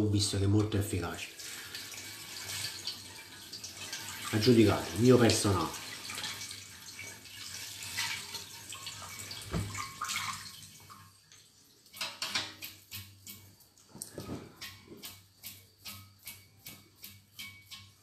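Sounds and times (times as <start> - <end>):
water running from tap: 0.2 - 18.0.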